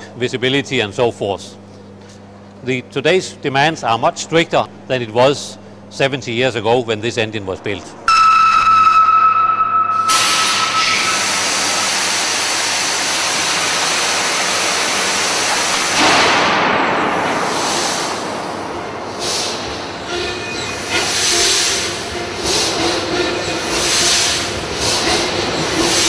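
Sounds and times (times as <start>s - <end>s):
warning horn tone: 8.1s - 11.9s
diesel engine hiss and rush: 10.1s - 26.0s.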